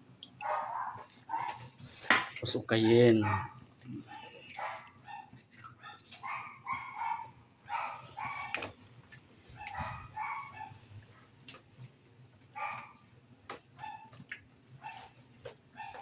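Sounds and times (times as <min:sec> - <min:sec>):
small dog yapping: 0:00.4 - 0:01.7, 0:02.9 - 0:03.6, 0:04.6 - 0:08.7, 0:09.6 - 0:10.8, 0:12.6 - 0:13.0, 0:13.8 - 0:14.2, 0:15.8 - 0:16.0.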